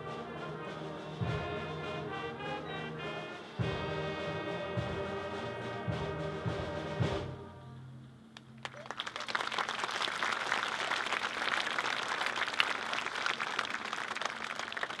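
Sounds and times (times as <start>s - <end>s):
crowd applauding: 8.4s - 15.0s.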